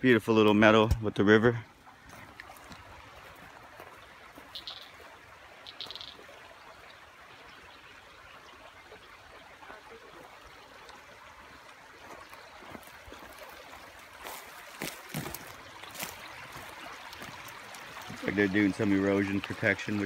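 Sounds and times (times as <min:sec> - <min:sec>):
creek trickling over rocks: 0:00.0 - 0:20.0
high chirp: 0:04.6 - 0:04.9, 0:05.7 - 0:06.2.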